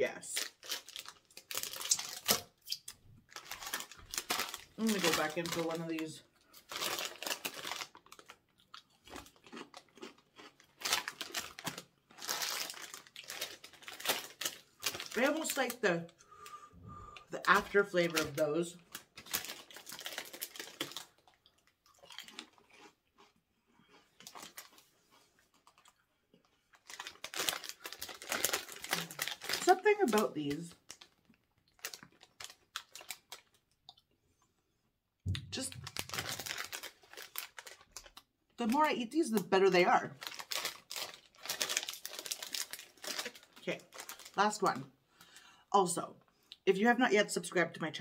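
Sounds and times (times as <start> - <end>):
plastic wrapper crinkling: 0.3 - 15.9, 17.4 - 22.6, 24.2 - 24.8, 26.7 - 33.8, 35.3 - 44.8
chewing candy: 6.5 - 15.6, 18.8 - 29.8, 40.2 - 44.5.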